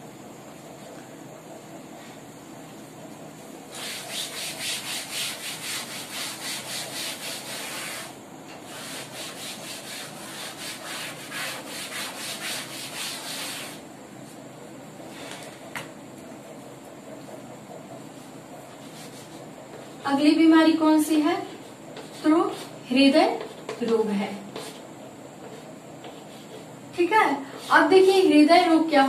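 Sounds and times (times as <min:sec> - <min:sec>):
eraser rubbing on chalkboard: 0:03.7 - 0:13.8, 0:18.7 - 0:20.0, 0:21.3 - 0:23.6, 0:24.5 - 0:24.8, 0:27.4 - 0:28.4.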